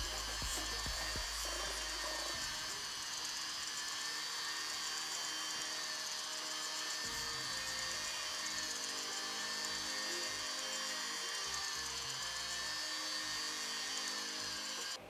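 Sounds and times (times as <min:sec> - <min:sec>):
background music with beat: 0:00.0 - 0:02.7
rotary wire wheel whine: 0:00.0 - 0:15.0.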